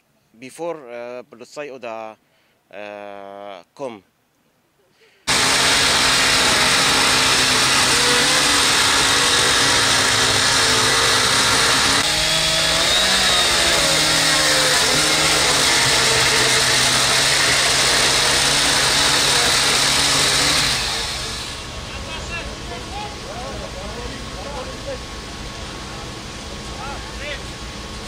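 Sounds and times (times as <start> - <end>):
chainsaw cutting: 5.3 - 22.2.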